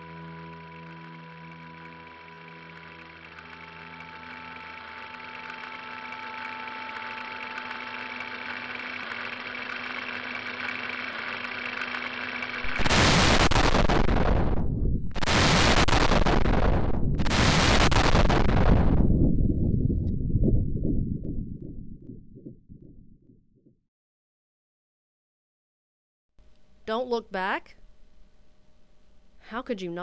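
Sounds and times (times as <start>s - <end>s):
low sustained drone: 0.0s - 15.2s
deep rumble: 12.5s - 23.7s
loud explosion blasts: 12.6s - 21.5s.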